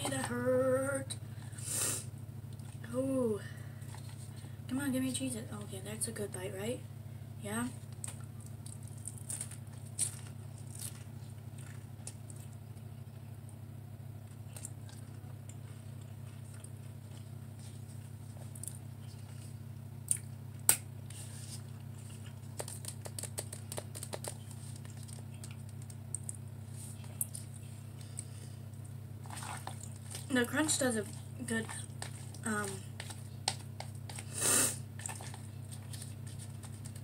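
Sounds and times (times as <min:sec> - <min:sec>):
steady low hum: 0:00.0 - 0:37.0
person chewing crunchy food: 0:08.0 - 0:12.8, 0:14.2 - 0:20.3, 0:21.2 - 0:30.3, 0:31.0 - 0:37.0.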